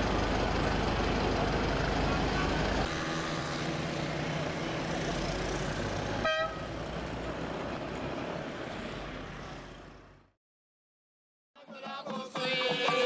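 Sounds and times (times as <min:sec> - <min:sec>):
vehicle road noise: 0:00.0 - 0:10.4
car horn toot: 0:06.2 - 0:06.7.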